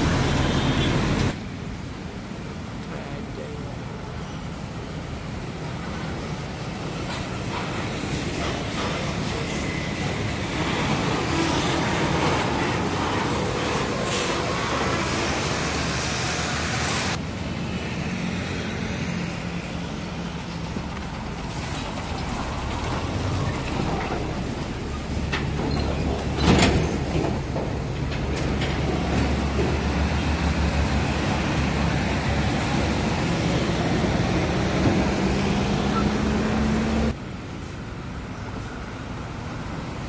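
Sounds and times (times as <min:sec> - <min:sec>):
truck engine approaching: 0:08.4 - 0:37.2.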